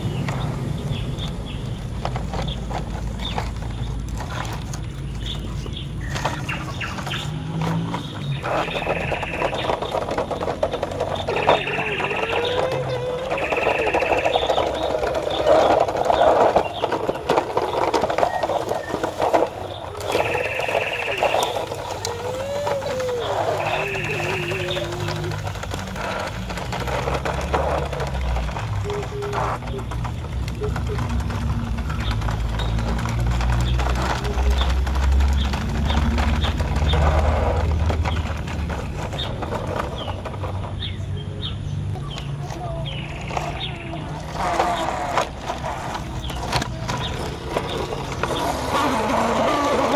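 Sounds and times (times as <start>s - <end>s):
birds chirping: 0.0s - 49.9s
grit crackling under tyres: 0.0s - 49.9s
wheels crunching gravel: 0.0s - 49.9s
toy truck motor whine: 7.1s - 38.2s, 43.3s - 49.9s.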